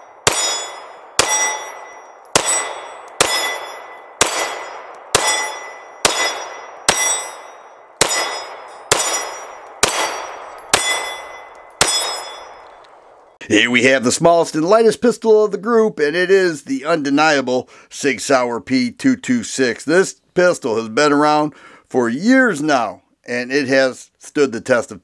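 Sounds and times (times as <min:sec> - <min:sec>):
bullets clanging on steel targets: 0:00.1 - 0:12.9
pistol shots: 0:00.1 - 0:13.1.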